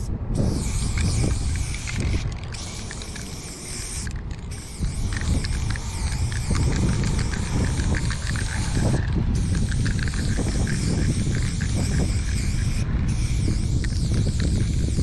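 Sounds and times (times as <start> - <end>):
spray can hissing: 0.0 - 15.0
traffic rumble: 0.0 - 15.0
wind: 0.0 - 15.0.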